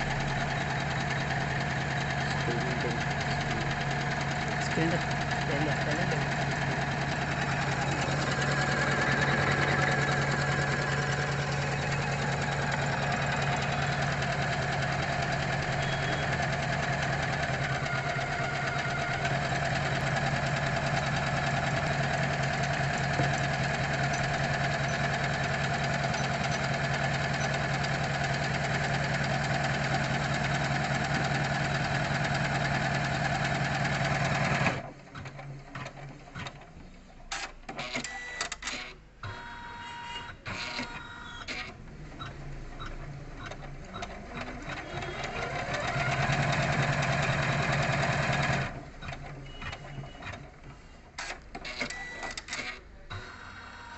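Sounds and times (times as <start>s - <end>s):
motor hum: 0.0s - 37.0s
embroidery machine needle clatter: 0.0s - 38.9s, 42.8s - 50.6s.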